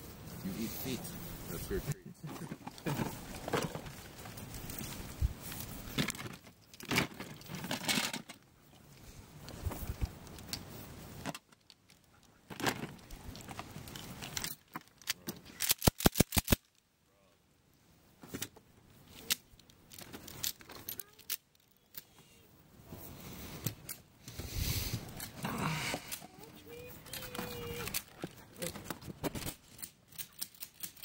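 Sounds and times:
rustling: 0.0 - 16.8, 18.1 - 31.0
sharp loud clicks: 15.6 - 16.7
gear rattling and clicking: 25.1 - 31.0.

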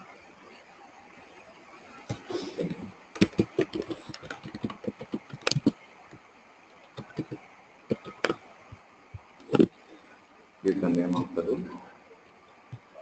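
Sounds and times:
computer keyboard typing: 3.2 - 5.7.

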